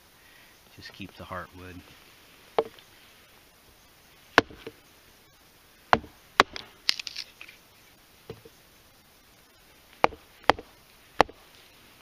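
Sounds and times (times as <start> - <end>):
hatchet chopping wood: 4.4 - 4.8, 5.9 - 7.0, 10.0 - 11.4.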